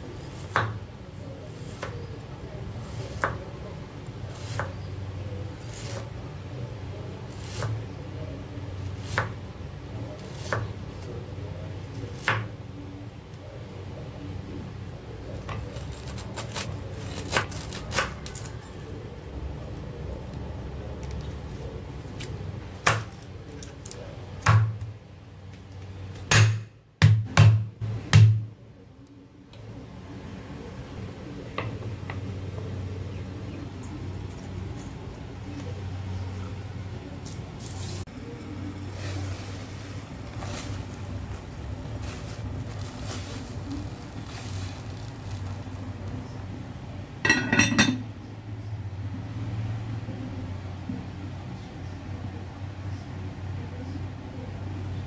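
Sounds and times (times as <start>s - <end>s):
cleaver chopping on wooden board: 26.3s - 28.4s
glass lid clinking on pot: 47.3s - 48.0s.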